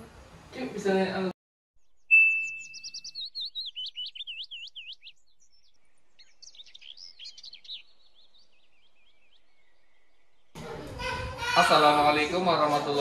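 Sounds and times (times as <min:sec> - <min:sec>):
bird chirping: 0:01.8 - 0:10.6.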